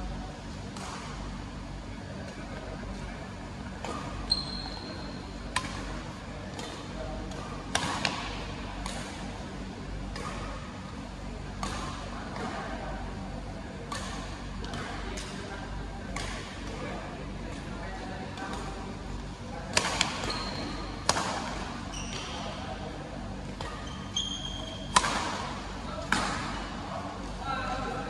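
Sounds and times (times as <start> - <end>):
short high squeak: 4.3 - 5.0, 23.9 - 24.9
rackets hitting shuttlecock: 5.5 - 9.3, 19.7 - 22.4, 24.7 - 26.9.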